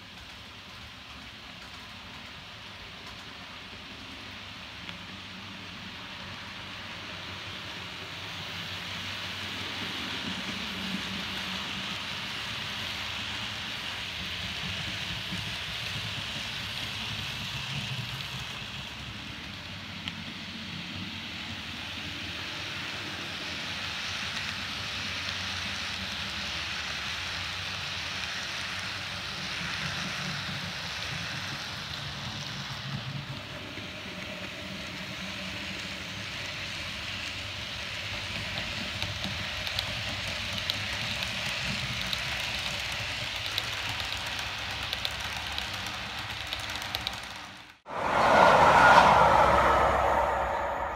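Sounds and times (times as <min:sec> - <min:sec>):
model train rolling hiss: 0:00.0 - 0:47.5
wheel clicks: 0:41.9 - 0:47.7
loud whoosh: 0:47.9 - 0:50.9.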